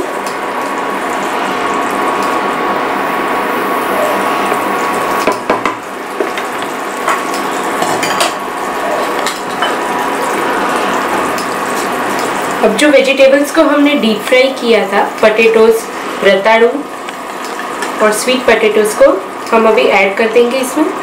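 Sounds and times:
vegetables sizzling in a pan: 0.0s - 21.0s
spatula knocking against pan: 5.4s - 6.5s.

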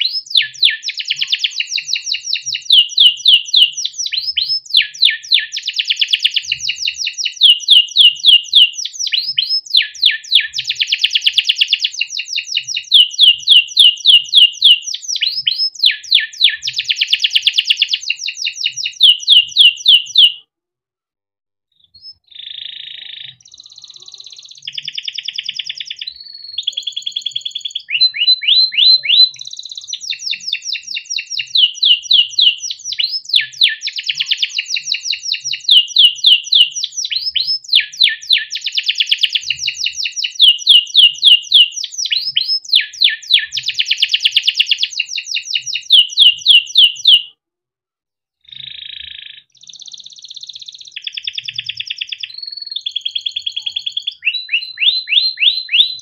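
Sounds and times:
canary singing trills: 0.0s - 20.4s, 21.8s - 47.3s, 48.4s - 56.0s.

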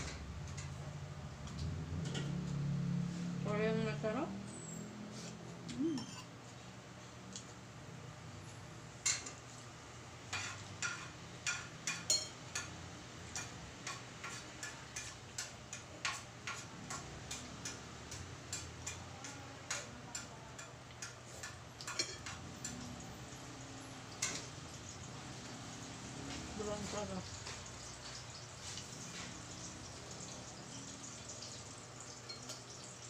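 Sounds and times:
cutlery clinking on ceramic plate: 5.9s - 6.4s, 10.3s - 23.0s, 32.2s - 32.7s.

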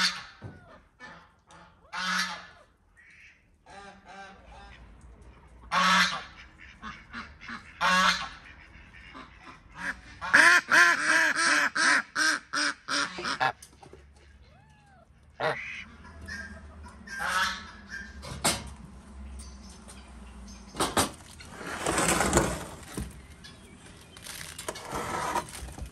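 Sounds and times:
ducks quacking: 0.0s - 13.6s, 15.3s - 18.4s
geese honking: 1.0s - 4.9s, 5.7s - 13.6s, 15.3s - 18.4s.

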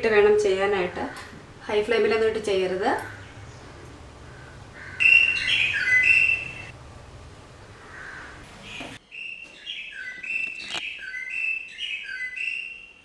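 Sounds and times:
low hum: 1.2s - 9.0s
bird whistling song: 5.0s - 6.7s, 8.7s - 13.0s.

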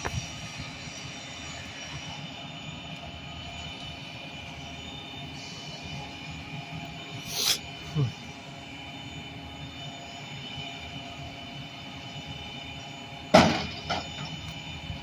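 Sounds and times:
concrete mixer trucks humming: 0.0s - 15.0s
sudden loud burst of noise: 13.3s - 14.4s.

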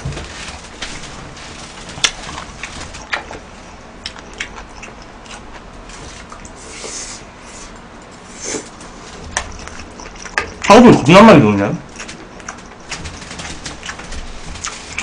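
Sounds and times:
chewing and wet mouth sounds: 1.9s - 7.0s, 7.8s - 10.8s, 11.8s - 15.0s.

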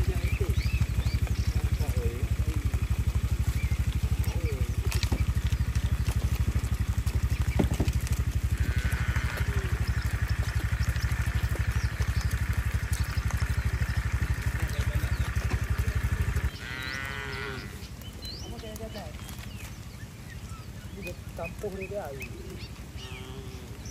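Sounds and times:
fast low pulsing: 0.0s - 18.8s
cattle mooing: 1.4s - 17.9s, 22.9s - 23.9s.

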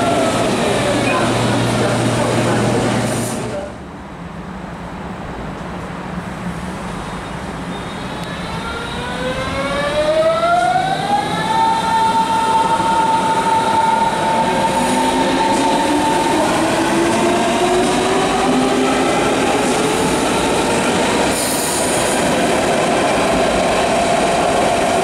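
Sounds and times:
train wheels rumbling on track: 10.6s - 25.0s.

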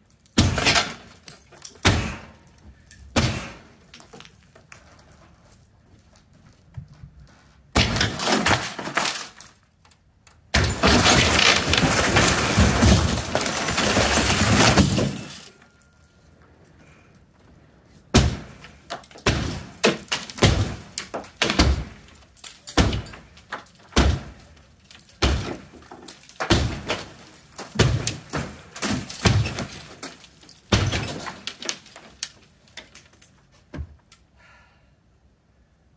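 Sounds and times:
sledgehammer striking metal roof: 0.4s - 1.1s, 1.8s - 2.4s, 3.1s - 3.8s, 7.7s - 9.1s, 10.5s - 15.4s, 18.1s - 22.1s, 22.8s - 23.3s, 23.9s - 24.5s, 25.2s - 25.8s, 26.4s - 30.0s, 30.7s - 31.6s
sheet-metal roofing crashing down: 10.5s - 15.6s.

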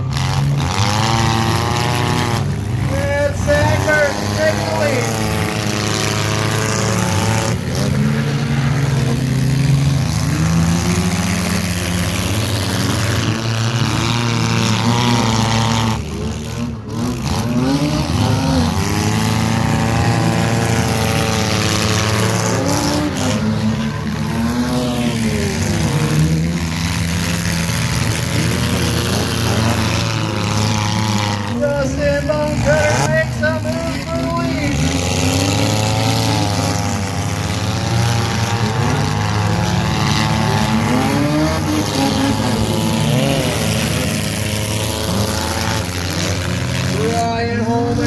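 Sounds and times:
race car engines: 0.0s - 48.0s.

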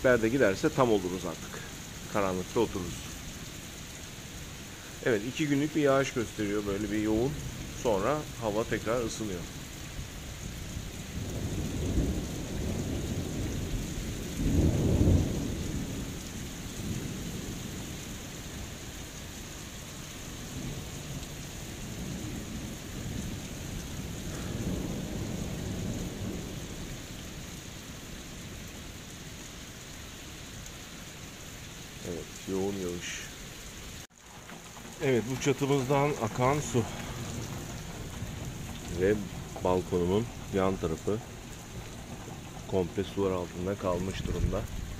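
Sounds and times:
heavy rain pouring: 0.0s - 44.9s
thunder rumbling: 4.6s - 29.2s, 34.2s - 44.9s.

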